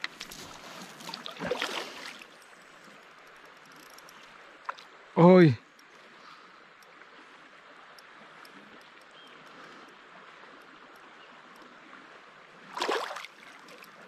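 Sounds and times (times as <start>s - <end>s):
flowing river water: 0.0s - 14.0s
faint ticks: 2.3s - 4.9s, 5.6s - 11.8s, 13.4s - 14.0s.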